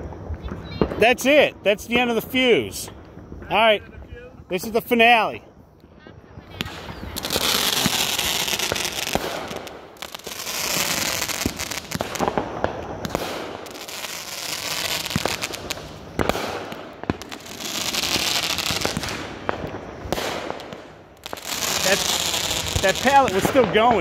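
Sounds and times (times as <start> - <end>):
fireworks hissing crackle: 0.0 - 24.0
sharp firework bangs: 6.5 - 24.0.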